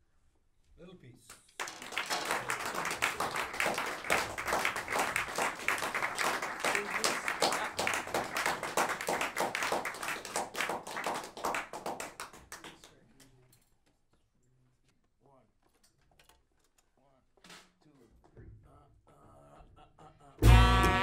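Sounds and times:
audience clapping: 1.3s - 13.3s.

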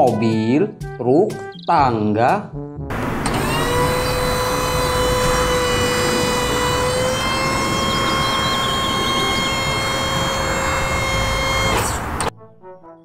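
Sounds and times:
hydraulic whine: 2.9s - 12.3s
low engine rumble: 2.9s - 12.3s.

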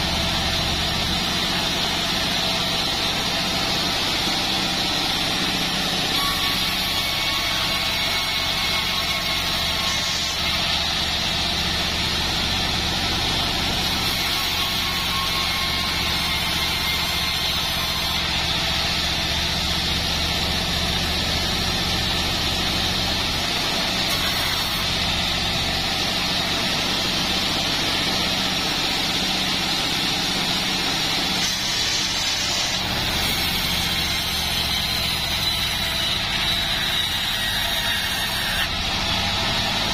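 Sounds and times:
sawmill drive drone: 0.0s - 39.9s
saw blade hiss: 13.5s - 22.8s, 23.7s - 27.0s, 30.7s - 39.9s.

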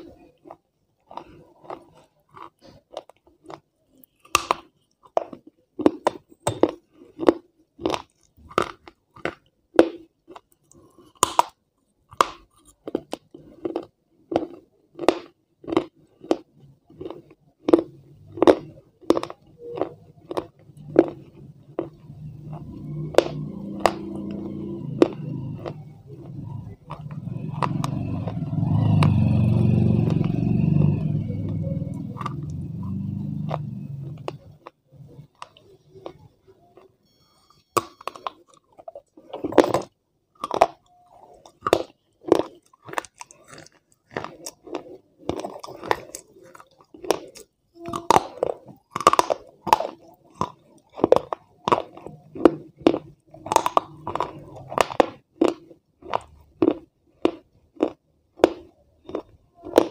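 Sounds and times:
crunchy food chewing: 0.0s - 37.0s, 37.8s - 59.9s
mouth sounds: 19.4s - 37.0s
loud low rumble: 22.0s - 34.4s.

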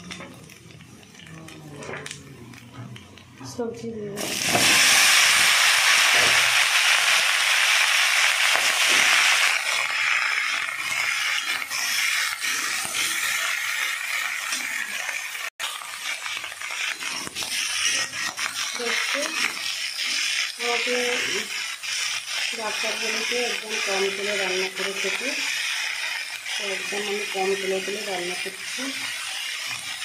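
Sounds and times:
vegetables sizzling in hot oil: 0.0s - 30.0s
metal spatula scraping pan: 8.2s - 30.0s.

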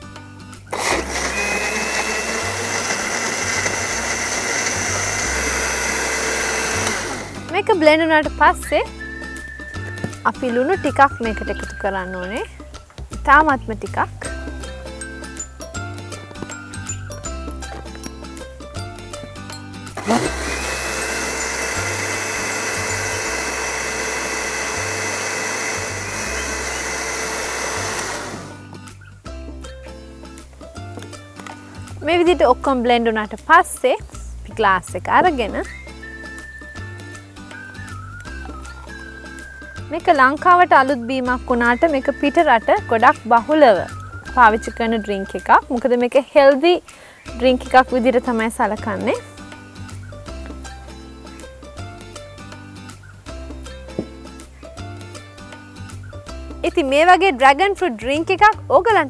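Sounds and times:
blender running: 0.7s - 7.5s, 20.0s - 28.7s.

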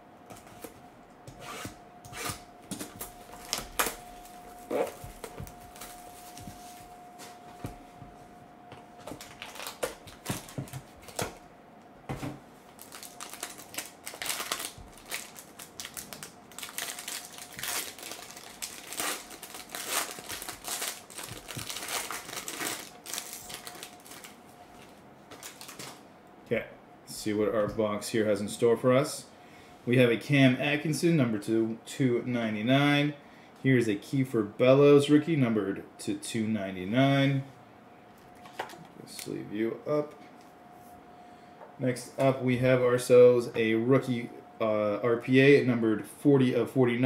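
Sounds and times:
plastic and foil crinkling: 2.9s - 6.9s, 9.0s - 11.4s, 12.7s - 26.0s.

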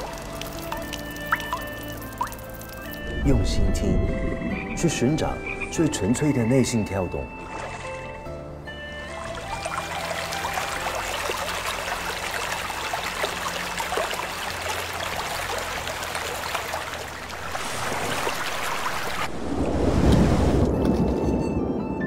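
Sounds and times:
stream splashing over rocks: 0.0s - 3.1s, 9.2s - 19.4s
deep water rushing: 0.0s - 8.2s, 8.8s - 21.0s.

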